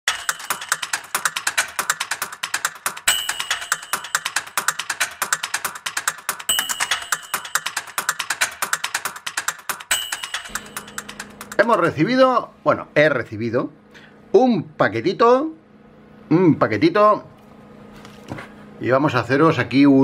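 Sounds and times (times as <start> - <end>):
typewriter bell ring: 0.1 - 1.5, 2.8 - 5.4, 6.0 - 8.7, 9.6 - 11.7
rapid typewriter key clicks: 0.1 - 11.9.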